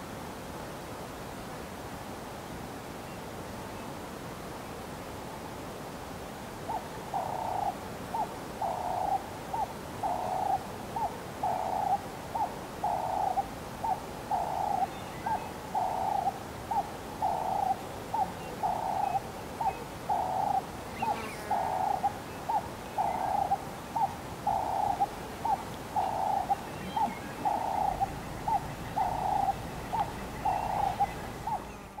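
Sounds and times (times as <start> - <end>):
repeated hooting call: 24.5 - 32.0.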